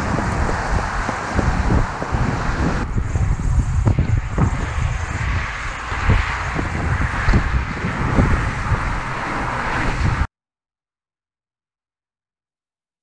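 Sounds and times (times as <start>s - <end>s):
road traffic passing: 0.0s - 10.3s
wind buffeting microphone: 0.0s - 10.3s.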